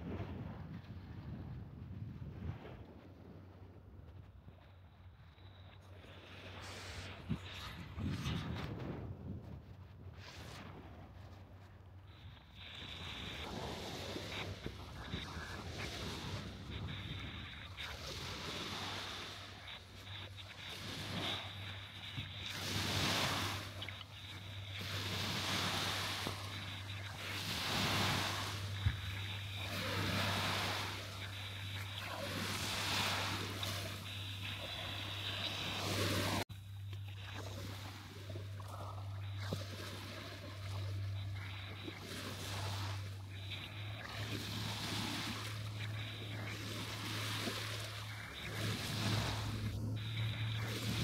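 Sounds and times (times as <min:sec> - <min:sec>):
steady low hum: 0:00.0 - 0:51.0
small waves breaking on beach: 0:05.4 - 0:51.0.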